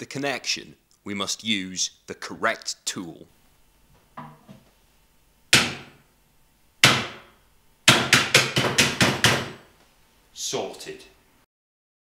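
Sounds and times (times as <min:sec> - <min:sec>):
hammer striking metal: 0:05.5 - 0:06.0, 0:06.8 - 0:07.3, 0:07.9 - 0:09.6.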